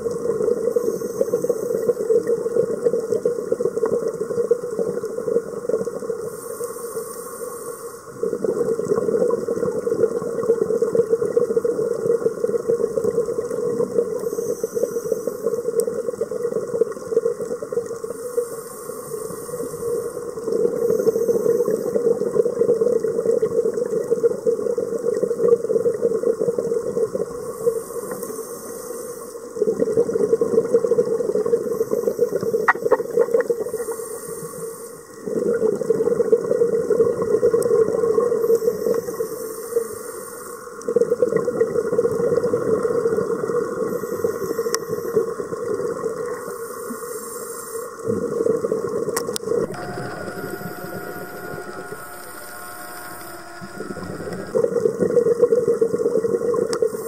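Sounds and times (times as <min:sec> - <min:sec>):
inhalation hiss through regulator: 0:00.6 - 0:02.1, 0:06.2 - 0:08.5, 0:14.2 - 0:15.8, 0:18.0 - 0:22.2, 0:27.4 - 0:29.6, 0:31.4 - 0:35.4, 0:38.4 - 0:40.8, 0:43.8 - 0:45.4, 0:46.3 - 0:48.1, 0:56.8 - 0:57.0
regulator bubbling and rushing: 0:48.5 - 0:56.7.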